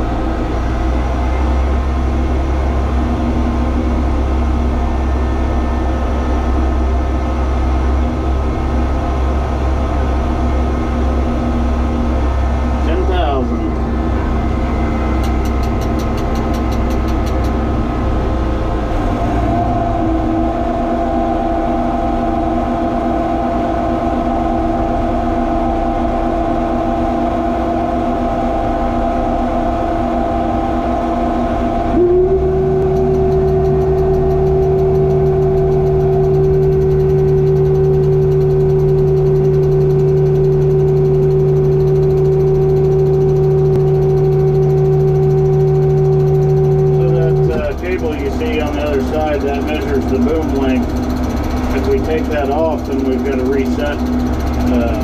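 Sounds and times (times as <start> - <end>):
air conditioner humming: 19.7 - 55.0.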